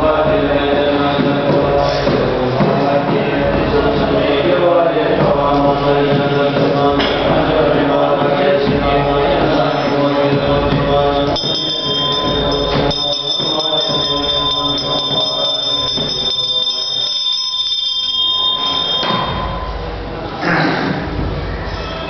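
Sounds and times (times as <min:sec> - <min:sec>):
voices chanting: 0:00.0 - 0:20.7
high bell-like ringing: 0:11.2 - 0:20.0.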